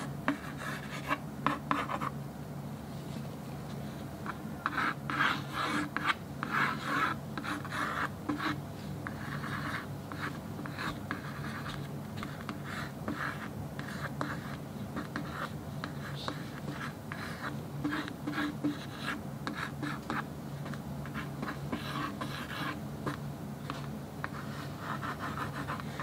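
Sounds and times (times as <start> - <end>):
pencil scratching on board: 0.3 - 2.1, 4.6 - 26.0.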